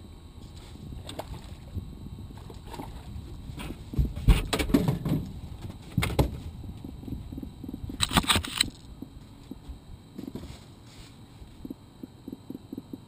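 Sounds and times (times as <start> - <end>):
knocks and clatter on a boat: 2.4 - 8.0.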